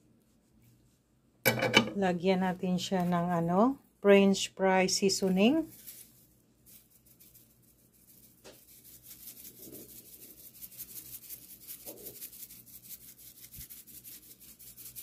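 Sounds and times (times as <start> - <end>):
seasoning shaker rattling: 4.9 - 15.0.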